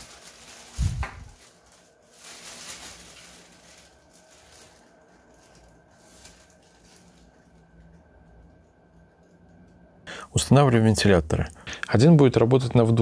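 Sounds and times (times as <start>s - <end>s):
plastic bag rustling: 0.0s - 8.4s
faint fan tone: 0.0s - 12.2s.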